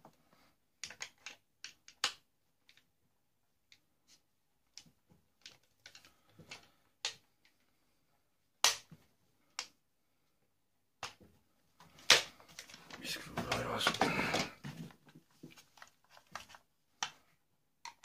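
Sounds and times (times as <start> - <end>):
plastic and metal parts clicking: 0.8 - 2.9.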